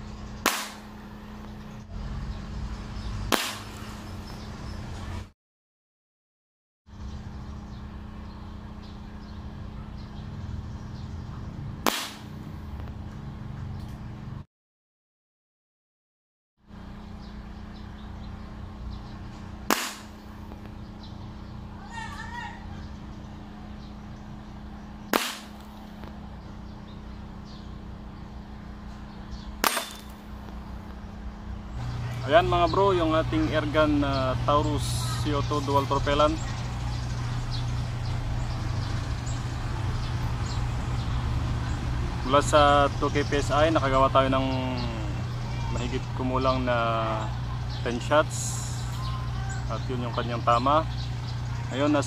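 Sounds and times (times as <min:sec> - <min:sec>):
steady low hum: 0:00.0 - 0:05.3, 0:06.9 - 0:14.4, 0:16.7 - 0:52.0
airgun shot crack: 0:00.4 - 0:01.0, 0:03.3 - 0:03.9, 0:11.8 - 0:12.4, 0:19.7 - 0:20.2, 0:25.1 - 0:25.8, 0:29.6 - 0:30.2
pellet striking cardboard target: 0:00.4 - 0:01.0, 0:03.3 - 0:03.8, 0:11.8 - 0:12.4, 0:19.7 - 0:20.2, 0:25.1 - 0:25.8, 0:29.6 - 0:30.2.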